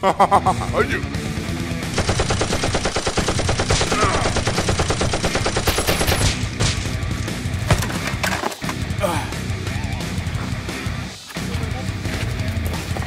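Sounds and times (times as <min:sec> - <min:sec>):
toy blaster rapid firing: 0:02.0 - 0:06.4.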